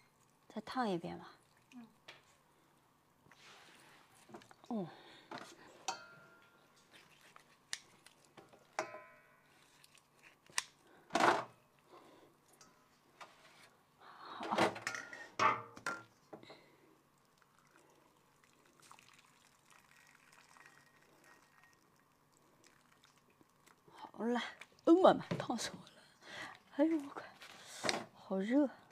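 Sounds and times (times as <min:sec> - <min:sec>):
water dripping and splashing: 0:17.2 - 0:23.8.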